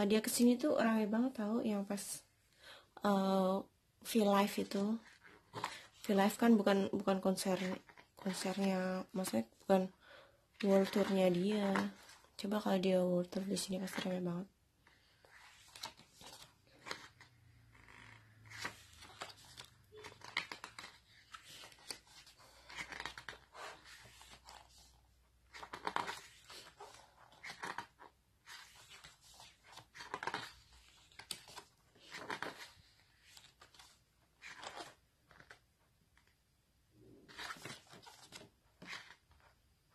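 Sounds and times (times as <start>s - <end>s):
book pages turning: 5.0s - 6.4s, 10.6s - 12.4s, 15.0s - 36.4s, 37.2s - 39.6s.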